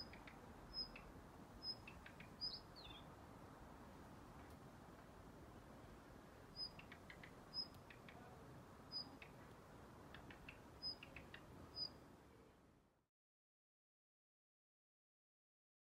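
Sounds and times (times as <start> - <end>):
bird soft tacking clicks: 0.0 - 1.1, 1.8 - 2.5, 6.6 - 8.2, 10.1 - 11.5
bird high sharp calls: 0.0 - 3.1, 6.5 - 8.3, 8.9 - 9.4, 10.1 - 12.0.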